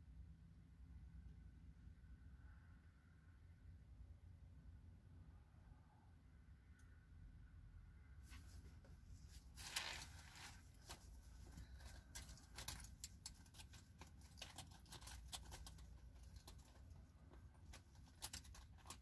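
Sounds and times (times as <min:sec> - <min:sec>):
faint low hum: 0:00.0 - 0:19.0
short rustle: 0:08.2 - 0:16.8.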